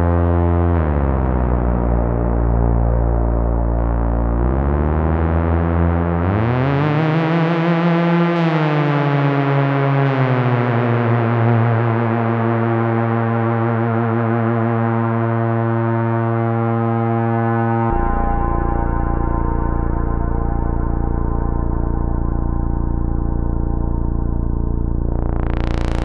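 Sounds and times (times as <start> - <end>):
brassy synthesizer low notes: 0.0 - 26.0.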